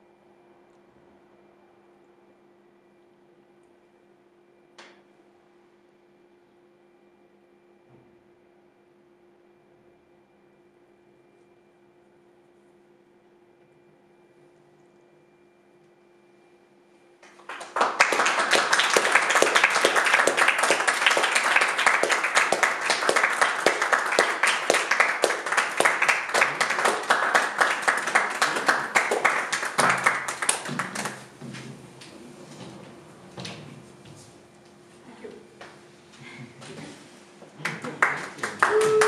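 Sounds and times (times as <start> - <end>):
audience applauding: 17.2 - 31.4, 37.6 - 39.0.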